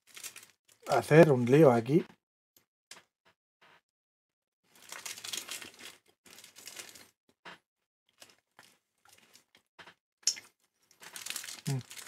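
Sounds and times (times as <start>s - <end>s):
plastic wrapper crinkling: 0.0s - 1.3s, 4.7s - 7.2s, 8.1s - 9.6s, 10.4s - 12.0s.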